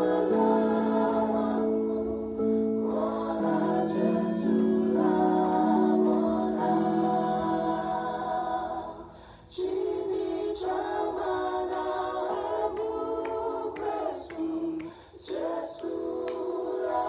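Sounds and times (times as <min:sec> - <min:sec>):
a cappella group singing harmony: 0:00.0 - 0:17.0
singer breaths: 0:09.0 - 0:09.5, 0:14.8 - 0:15.2.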